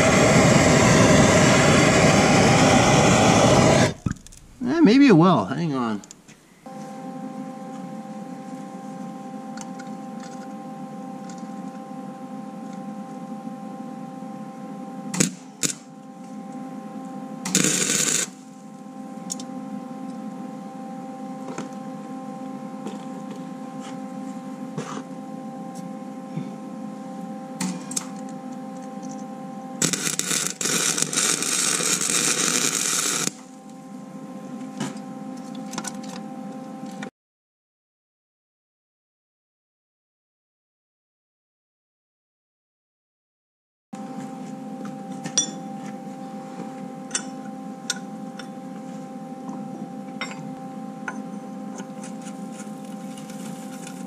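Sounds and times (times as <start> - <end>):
welding arc crackling: 0.0 - 5.0, 15.2 - 15.9, 17.4 - 18.7, 29.8 - 33.5
stick welder humming: 0.0 - 12.8, 15.0 - 20.4, 27.2 - 33.9, 49.5 - 54.0.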